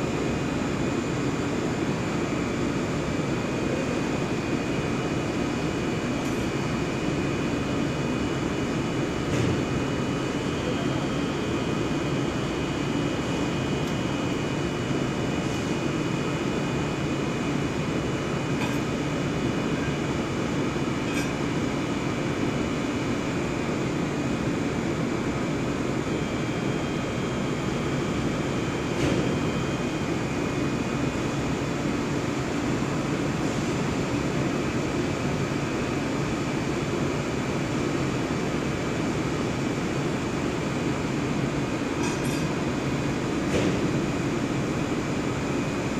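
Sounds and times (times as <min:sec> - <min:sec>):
machine noise with steady tones: 0:00.0 - 0:45.9.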